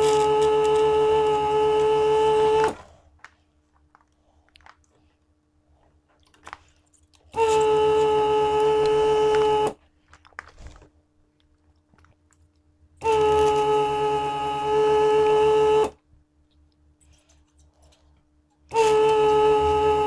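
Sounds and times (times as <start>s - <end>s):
vacuum pump buzzing: 0.0s - 3.0s, 7.3s - 9.8s, 13.0s - 16.1s, 18.6s - 20.0s.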